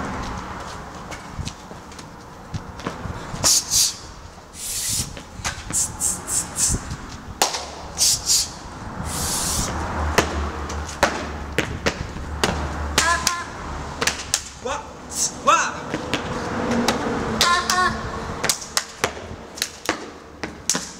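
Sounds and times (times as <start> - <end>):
shaker-like hisses: 4.6 - 5.1, 5.7 - 6.9, 8.0 - 9.7.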